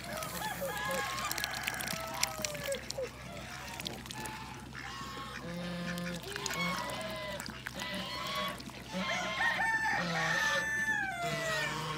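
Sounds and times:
chickens clucking: 0.0s - 11.9s
rooster crowing: 0.1s - 2.7s, 9.0s - 11.9s.

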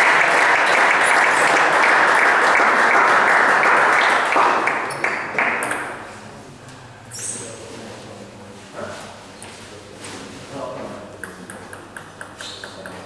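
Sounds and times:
spectators applauding: 0.0s - 6.0s.

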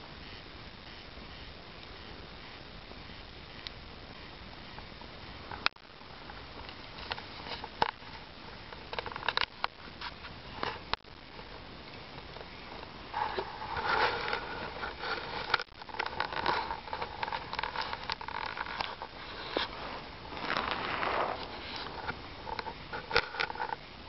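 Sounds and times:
bonfire crackling: 0.0s - 24.0s
fire hissing: 0.0s - 24.0s.

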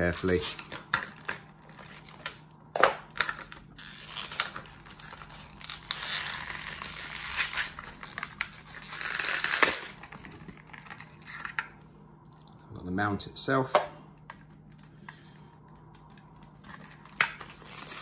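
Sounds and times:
plastic tearing: 0.0s - 2.4s, 3.0s - 11.7s, 16.5s - 18.0s
plastic crinkling and crackling: 0.0s - 11.8s, 15.7s - 18.0s.

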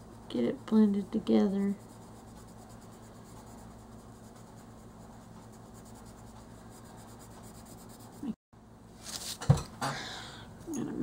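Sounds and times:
colored pencil scratching on paper: 0.0s - 8.4s
low steady hum: 0.0s - 11.0s.

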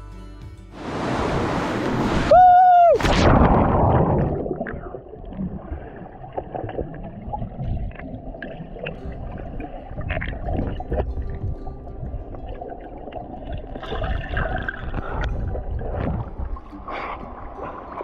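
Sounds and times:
loud rush of noise: 0.8s - 4.0s
river water gurgling: 3.1s - 18.0s.

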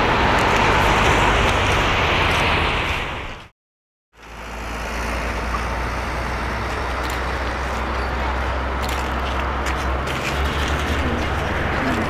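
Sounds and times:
jet engines rumbling and hissing: 0.0s - 3.5s.

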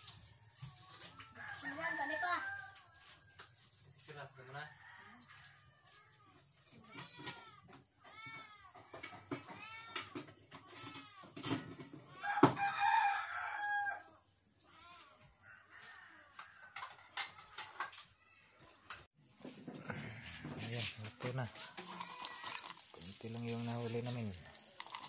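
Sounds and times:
rooster crowing: 0.8s - 3.2s, 4.6s - 6.0s, 12.2s - 14.2s, 15.4s - 17.4s.

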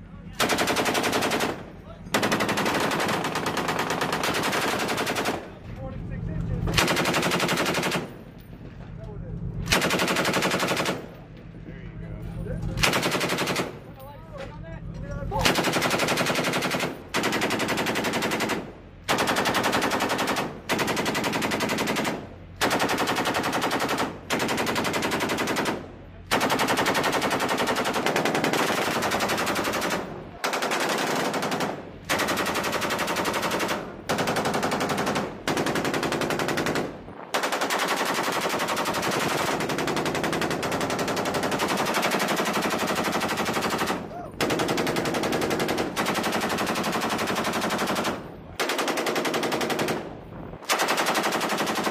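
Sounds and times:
machine gun automatic fire: 0.4s - 5.6s, 6.6s - 8.2s, 9.6s - 11.1s, 12.8s - 13.8s, 15.4s - 51.9s.

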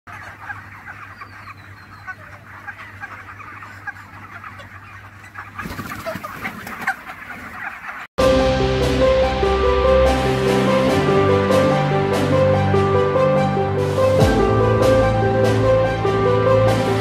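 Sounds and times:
chickens clucking and peeping: 0.1s - 8.1s.

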